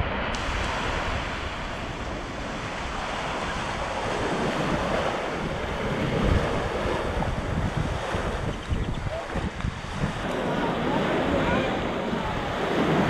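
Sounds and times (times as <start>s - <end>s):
sea surf: 0.0s - 13.0s
wind buffeting microphone: 0.0s - 13.0s.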